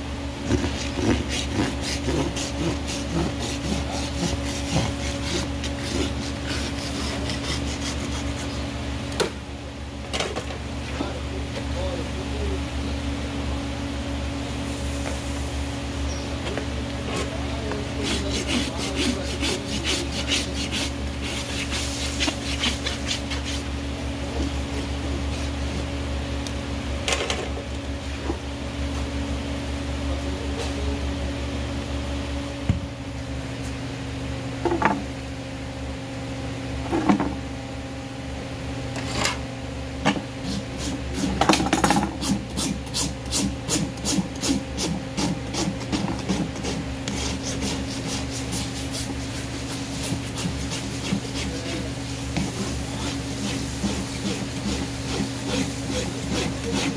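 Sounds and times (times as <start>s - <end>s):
steady low hum: 0.0s - 56.9s
hoof rasp filing hoof: 0.4s - 8.7s, 17.1s - 23.7s, 40.4s - 56.9s.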